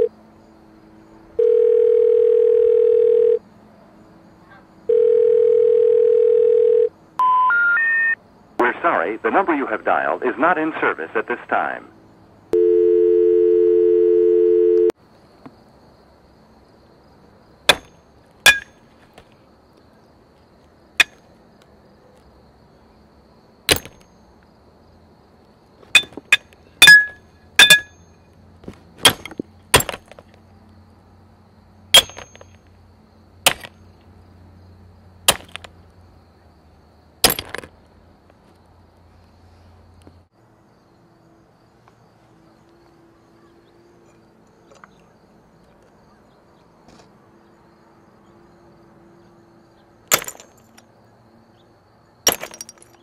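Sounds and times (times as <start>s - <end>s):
telephone dial tone: 1.4s - 3.4s, 4.9s - 7.4s, 12.6s - 15.0s
ceramic teacup smashing: 26.8s - 27.9s, 52.3s - 53.0s.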